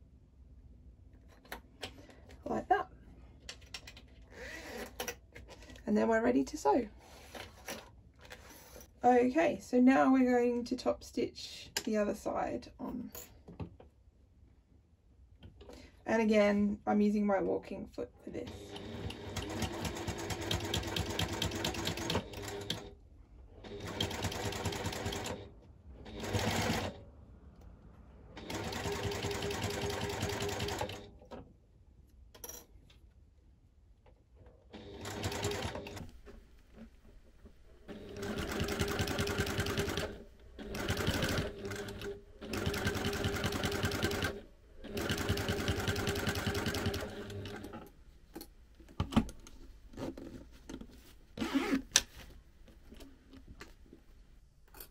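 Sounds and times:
sewing machine running: 18.5s - 22.9s, 23.6s - 25.5s, 26.1s - 27.0s, 28.4s - 31.1s, 34.7s - 36.1s, 37.9s - 47.8s.

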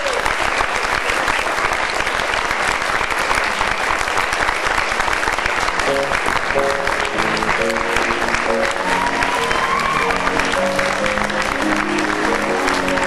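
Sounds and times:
audience applauding: 0.0s - 13.0s
music playing: 5.9s - 13.0s.

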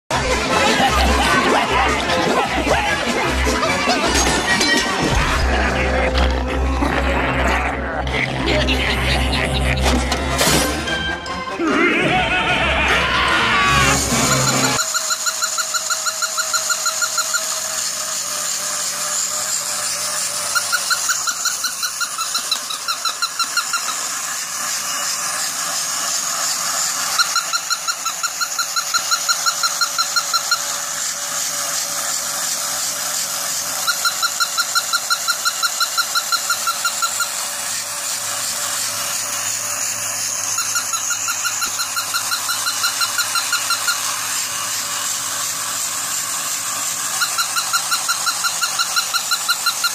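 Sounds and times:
toy motor and gears whirring: 0.1s - 11.4s, 12.3s - 49.9s
high-pitched electronic yapping: 12.9s - 17.7s, 20.4s - 24.2s, 27.1s - 30.9s, 40.4s - 44.2s, 47.1s - 49.9s.

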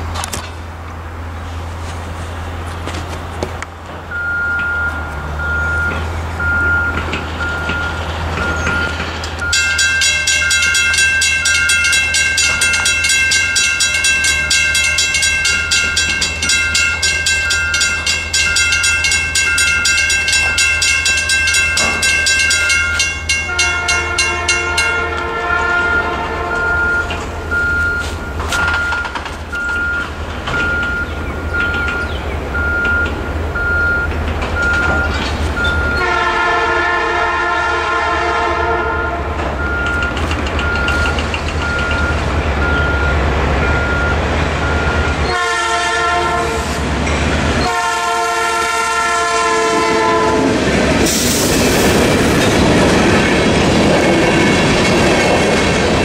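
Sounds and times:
crossing bell ringing: 4.1s - 50.9s, 51.6s - 56.0s
locomotive horn: 23.4s - 29.0s, 35.6s - 40.0s, 44.7s - 46.8s, 47.6s - 51.2s.

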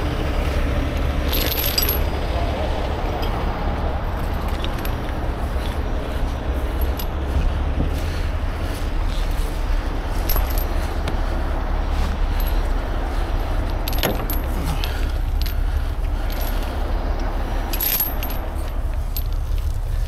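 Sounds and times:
heavy diesel engine running: 0.0s - 20.0s
metallic clinks and jingling: 1.3s - 2.3s, 4.0s - 7.6s, 9.0s - 11.1s, 11.9s - 20.0s.

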